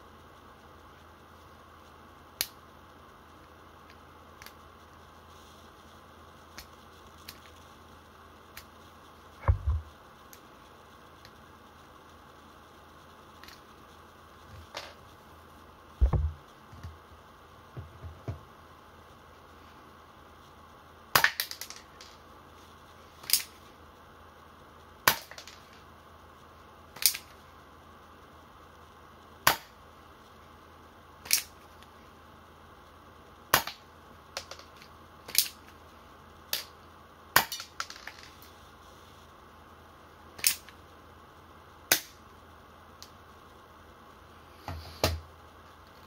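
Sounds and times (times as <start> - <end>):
dull thump: 9.4 - 9.8, 16.0 - 16.4.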